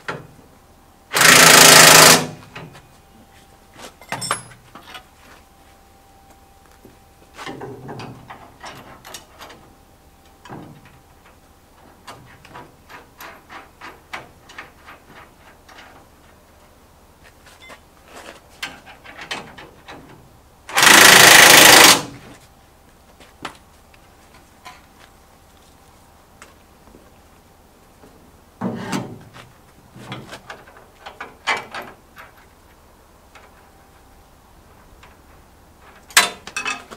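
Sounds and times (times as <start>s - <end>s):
metal brackets clinking: 4.0s - 5.1s, 36.0s - 36.9s.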